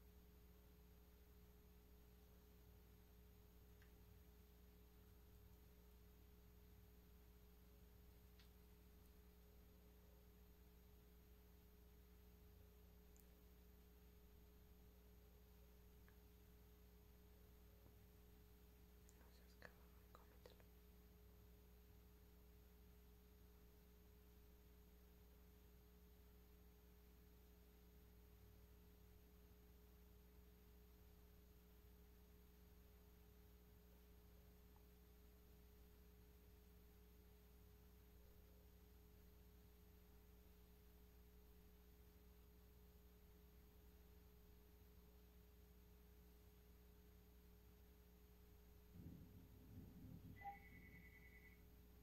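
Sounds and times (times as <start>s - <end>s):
faint steady hum: 0.0s - 52.0s
thin high whine: 48.9s - 52.0s.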